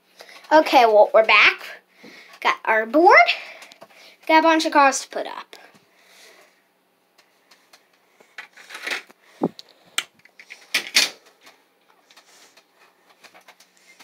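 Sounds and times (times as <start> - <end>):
objects clicking and rustling: 7.2 - 14.0.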